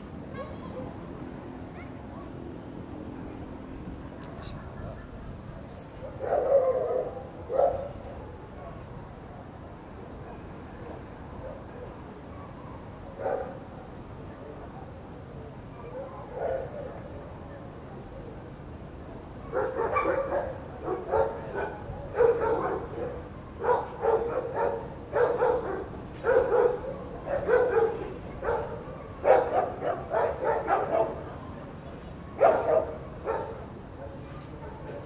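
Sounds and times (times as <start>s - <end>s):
dog barking: 6.0s - 8.0s, 13.2s - 13.6s, 15.9s - 16.8s, 19.5s - 31.2s, 32.4s - 33.6s.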